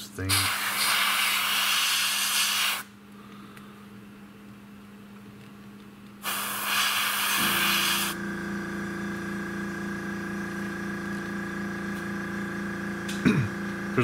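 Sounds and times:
air compressor motor hum: 0:00.0 - 0:02.9, 0:06.2 - 0:14.0
airbrush spraying hiss: 0:00.3 - 0:02.9, 0:06.2 - 0:08.2.

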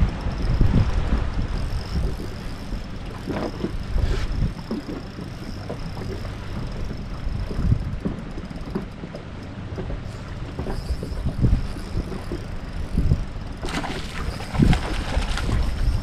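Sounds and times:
faint steady high whine: 0:00.0 - 0:16.0
wind buffeting microphone: 0:00.0 - 0:16.0.

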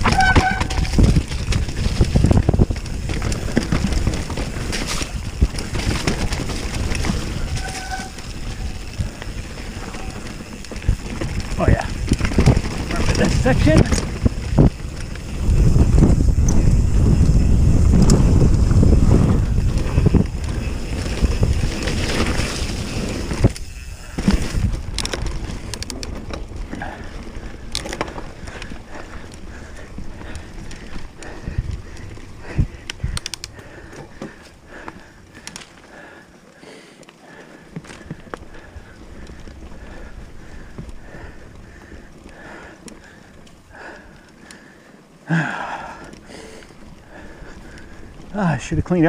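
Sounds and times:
tyre rumble: 0:00.0 - 0:35.4
wind buffeting microphone: 0:00.0 - 0:35.6, 0:38.0 - 0:49.0
wheels knocking over roots: 0:00.0 - 0:36.3, 0:37.2 - 0:49.0
bike rattling: 0:00.0 - 0:49.0.

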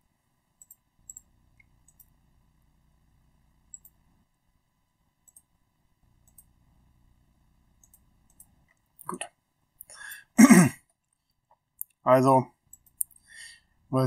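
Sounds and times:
computer mouse clicks: 0:00.6 - 0:02.2, 0:03.7 - 0:04.0, 0:05.2 - 0:05.5, 0:06.2 - 0:06.6, 0:07.8 - 0:09.2, 0:12.7 - 0:13.3.

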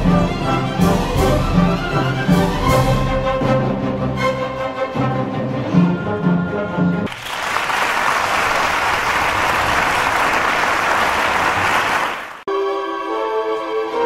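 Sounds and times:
string music: 0:00.0 - 0:07.1, 0:12.5 - 0:14.0
crowd applause: 0:07.1 - 0:12.5.

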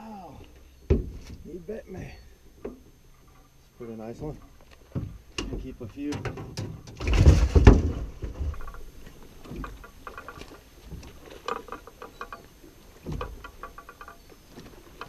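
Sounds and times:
fish thumping and splashing: 0:04.9 - 0:11.8.

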